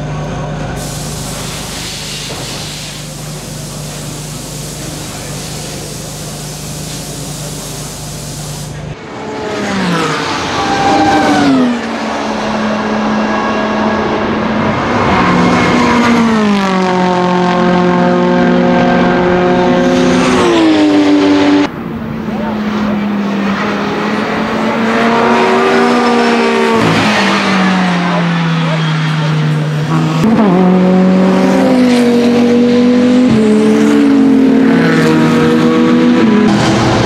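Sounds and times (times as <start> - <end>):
race car engine revving: 0.7 - 37.0
steady hum and hiss: 0.8 - 8.9.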